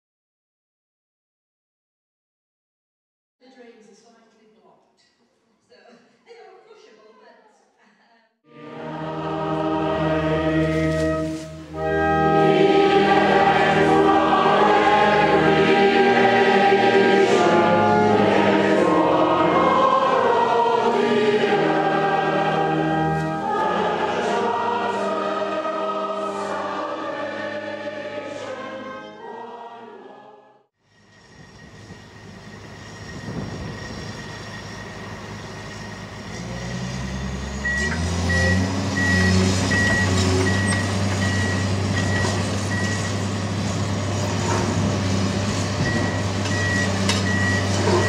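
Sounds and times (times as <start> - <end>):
sustained organ notes: 8.5 - 30.3
congregation singing a hymn: 8.5 - 30.7, 44.5 - 48.0.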